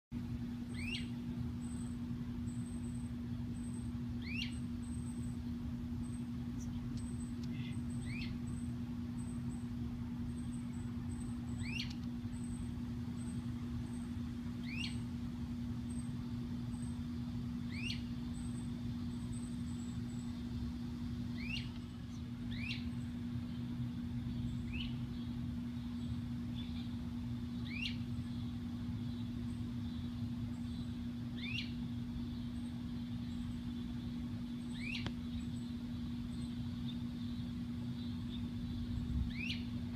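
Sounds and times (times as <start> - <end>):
low hum and rumble: 0.1 - 39.9
birds whistling calls: 0.6 - 39.9.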